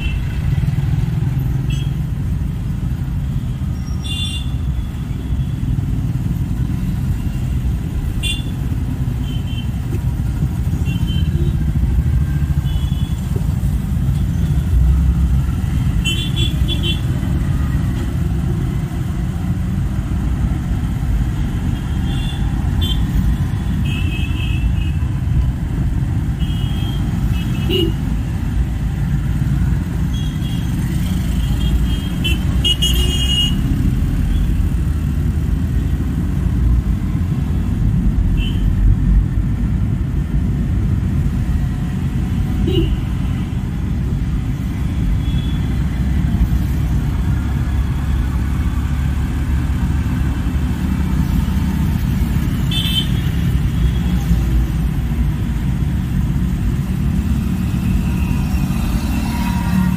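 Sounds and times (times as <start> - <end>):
traffic engines rumbling: 0.0 - 59.9.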